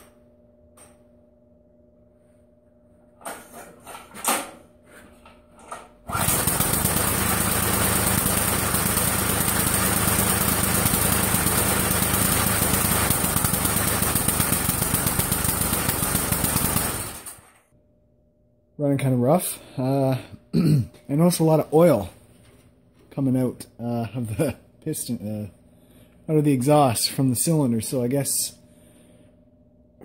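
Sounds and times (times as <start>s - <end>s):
pull starter cord: 6.1s - 17.6s
small engine running rough: 6.1s - 17.6s.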